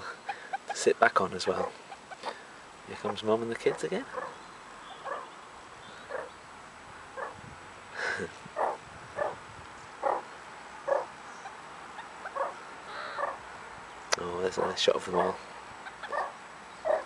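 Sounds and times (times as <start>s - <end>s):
meerkats calling: 0.0s - 6.4s, 7.1s - 7.4s, 8.5s - 9.4s, 10.0s - 13.5s, 14.5s - 17.0s.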